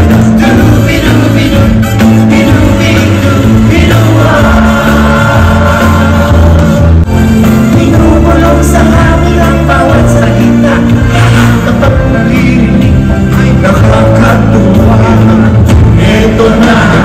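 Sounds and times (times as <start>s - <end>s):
loud live band music: 0.0s - 17.0s
people singing into microphones: 0.0s - 17.0s.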